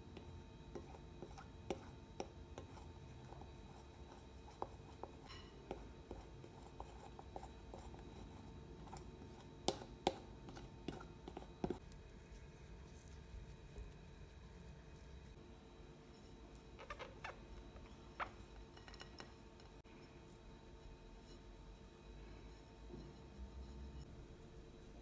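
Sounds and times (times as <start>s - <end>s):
fork scraping glass bowl: 0.7s - 9.8s.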